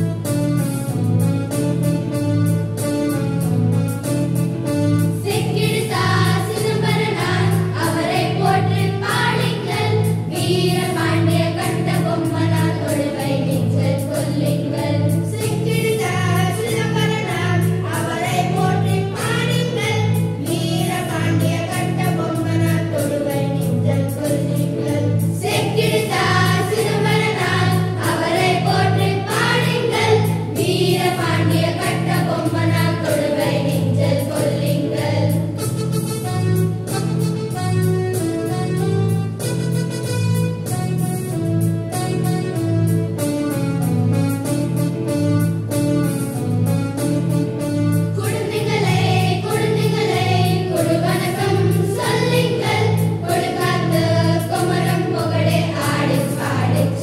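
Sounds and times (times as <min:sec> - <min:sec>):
electronic keyboard with bass pattern: 0:00.0 - 0:57.0
children singing together: 0:05.2 - 0:35.6, 0:48.2 - 0:57.0.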